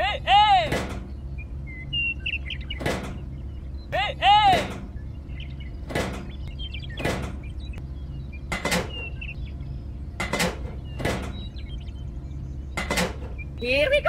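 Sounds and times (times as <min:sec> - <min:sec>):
steady low hum: 0:00.0 - 0:14.0
pipe sections knocking: 0:00.5 - 0:01.4, 0:02.6 - 0:03.5, 0:04.2 - 0:09.4, 0:10.0 - 0:11.8, 0:12.6 - 0:13.6.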